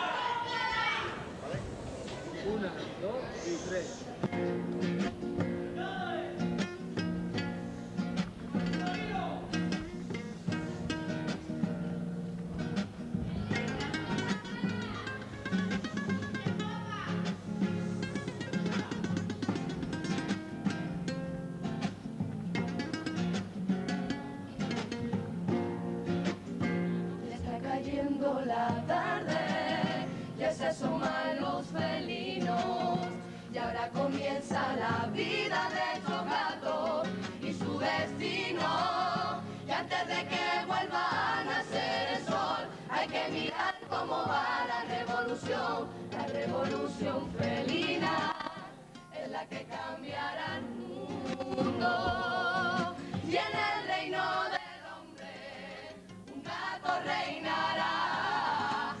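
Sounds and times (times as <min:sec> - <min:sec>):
guitars: 0:04.0 - 0:59.0
chorus singing in harmony: 0:26.9 - 0:59.0.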